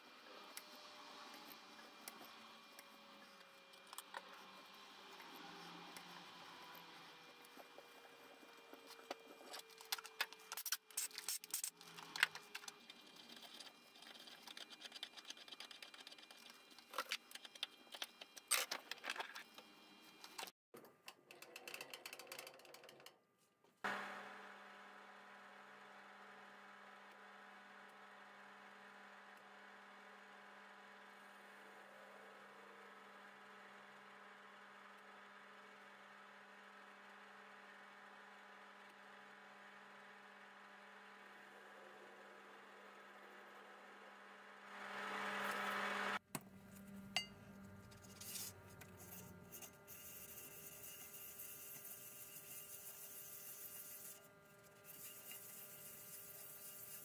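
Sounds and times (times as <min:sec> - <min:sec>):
scratchy rubbing on abrasive paper: 0:48.0 - 0:57.0.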